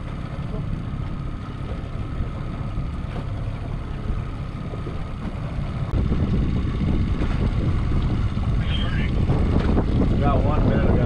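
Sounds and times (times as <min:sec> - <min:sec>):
boat motor droning: 0:00.0 - 0:11.0
water noise: 0:00.0 - 0:11.0
wind noise: 0:04.7 - 0:11.0.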